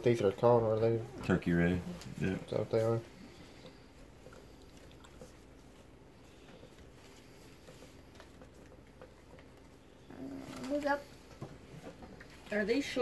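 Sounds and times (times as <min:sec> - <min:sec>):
cards ticking and rustling: 0:06.5 - 0:09.8.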